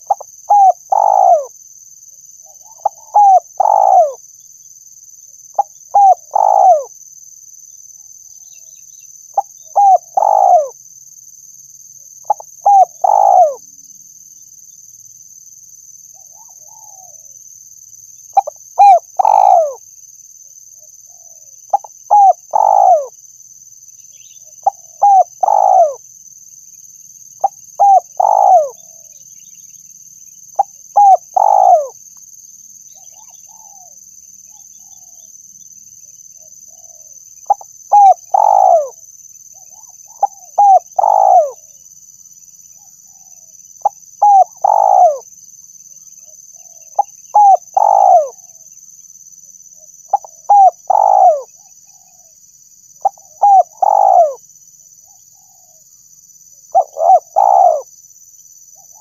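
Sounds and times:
dove cooing: 0:00.0 - 0:01.5, 0:02.4 - 0:04.2, 0:05.6 - 0:06.9, 0:09.4 - 0:10.8, 0:12.2 - 0:13.6, 0:18.4 - 0:19.8, 0:21.1 - 0:23.1, 0:24.6 - 0:26.0, 0:27.4 - 0:29.2, 0:30.6 - 0:32.0, 0:36.7 - 0:39.0, 0:39.6 - 0:41.7, 0:43.1 - 0:45.3, 0:46.6 - 0:48.5, 0:50.1 - 0:52.3, 0:53.0 - 0:54.4, 0:56.7 - 0:57.9.

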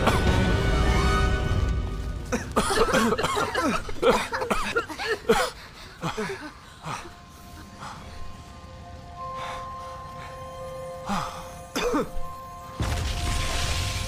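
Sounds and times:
people coughing and gasping: 0:00.0 - 0:00.4, 0:02.2 - 0:07.2, 0:11.7 - 0:12.3.

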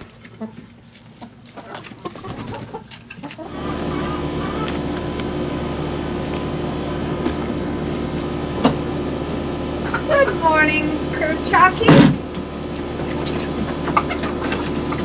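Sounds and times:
chicken clucks: 0:00.0 - 0:08.3, 0:12.3 - 0:15.0
mechanical hum: 0:00.0 - 0:15.0.

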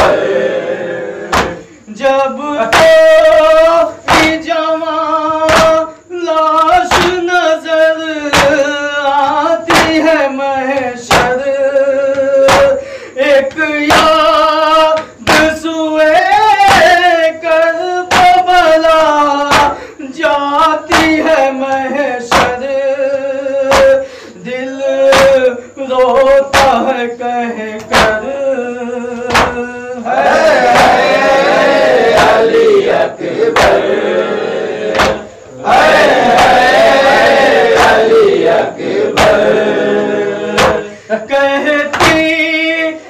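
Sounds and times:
man singing a lament: 0:00.0 - 0:34.0, 0:34.9 - 0:43.0
chest-beating slaps: 0:01.2 - 0:01.8, 0:02.7 - 0:03.5, 0:04.1 - 0:04.5, 0:05.4 - 0:05.8, 0:06.9 - 0:07.3, 0:08.3 - 0:08.7, 0:09.7 - 0:10.1, 0:10.7 - 0:11.5, 0:12.1 - 0:12.8, 0:13.5 - 0:14.3, 0:18.1 - 0:18.4, 0:20.9 - 0:22.7, 0:23.7 - 0:24.0, 0:26.6 - 0:26.9, 0:27.8 - 0:28.3, 0:29.1 - 0:34.1, 0:34.8 - 0:40.9, 0:41.9 - 0:42.4.

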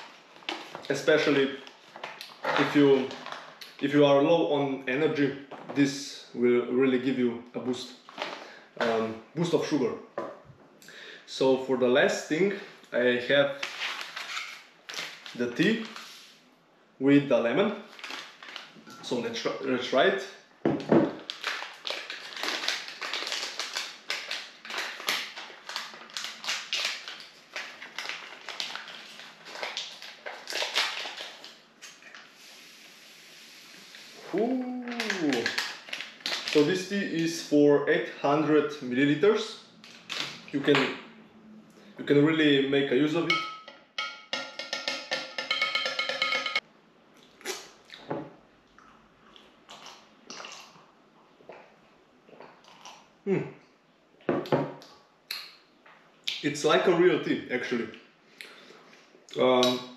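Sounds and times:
packaging crinkling: 0:13.6 - 0:16.2, 0:17.9 - 0:18.8, 0:21.1 - 0:31.6, 0:34.8 - 0:36.9
spoon clinking against glass: 0:43.3 - 0:46.6.

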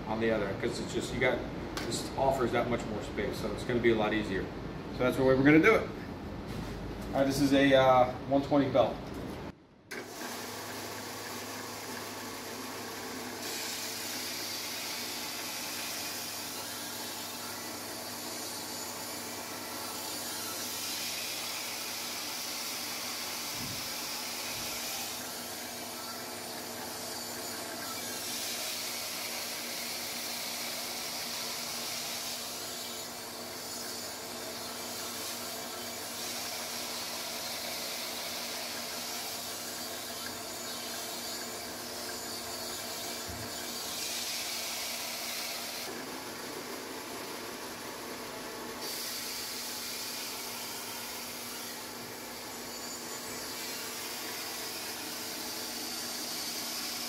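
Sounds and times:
belt sander humming: 0:10.0 - 0:57.0
steel grinding on abrasive belt: 0:11.2 - 0:45.9, 0:48.8 - 0:57.0.

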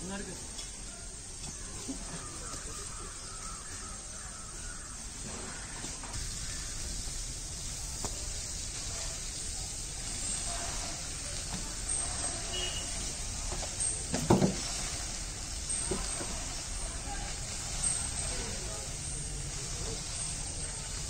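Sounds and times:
hose spraying onto concrete: 0:00.0 - 0:21.0
crows cawing: 0:01.6 - 0:07.0.

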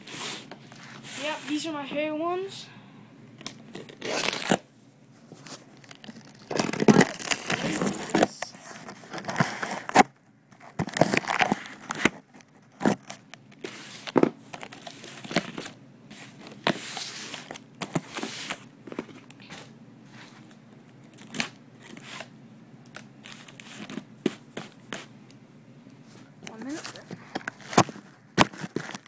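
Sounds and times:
packaging crinkling: 0:03.4 - 0:04.6, 0:05.4 - 0:22.3, 0:26.5 - 0:29.0
cardboard ripping and rustling: 0:03.7 - 0:04.6, 0:05.4 - 0:19.6, 0:26.6 - 0:29.0.

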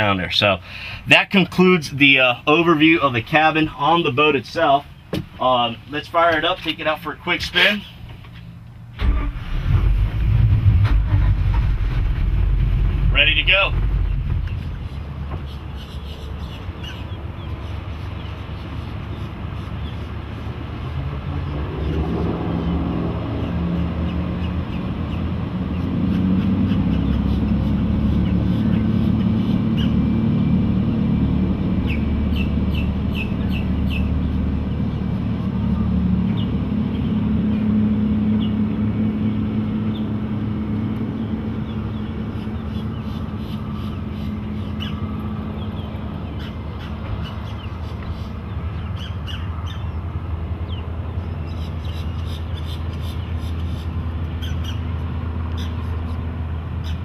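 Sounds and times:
boat engines droning: 0:00.0 - 0:57.0
birds chirping: 0:13.0 - 0:57.0.

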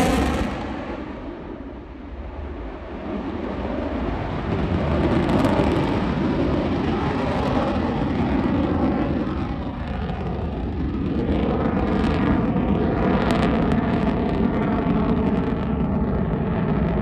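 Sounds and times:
jet engine afterburner roar: 0:00.0 - 0:17.0.

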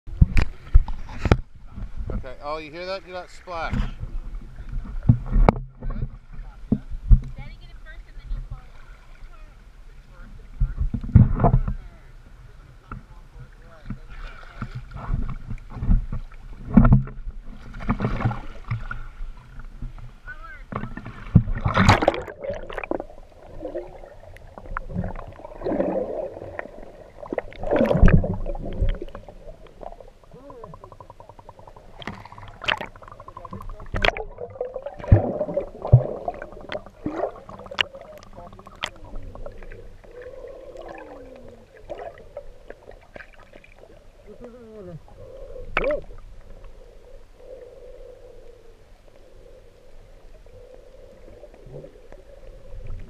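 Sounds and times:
seawater sloshing and splashing: 0:14.0 - 0:30.4, 0:31.8 - 0:44.3.

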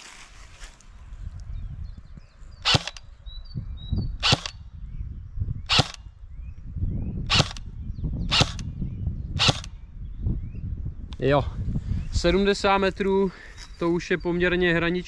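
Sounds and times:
airsoft gun shots cracking: 0:02.7 - 0:03.0, 0:04.2 - 0:04.6, 0:05.7 - 0:06.0.

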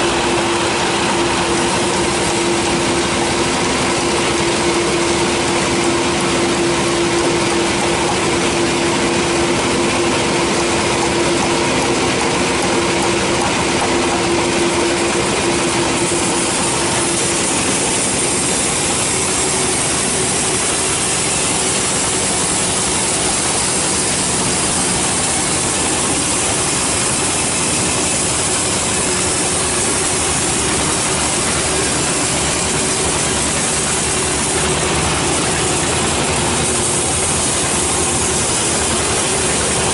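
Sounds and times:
sawmill machine drone: 0:00.0 - 0:39.9
high hiss of saw blade cutting: 0:15.6 - 0:39.9.

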